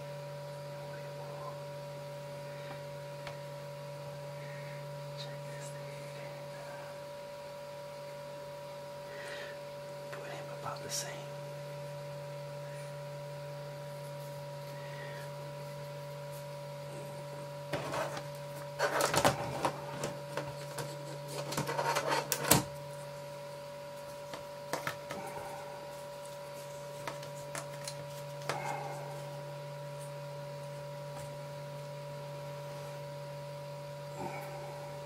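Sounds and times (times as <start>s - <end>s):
steady electrical hum: 0.0s - 35.0s.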